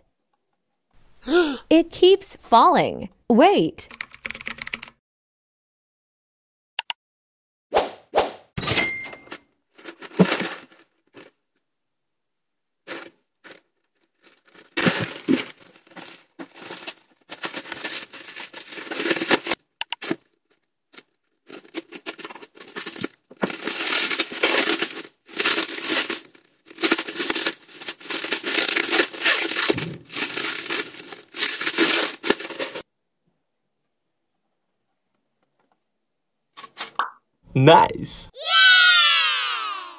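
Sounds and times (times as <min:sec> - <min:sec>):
plastic packaging crinkling and tearing: 0:12.9 - 0:32.8.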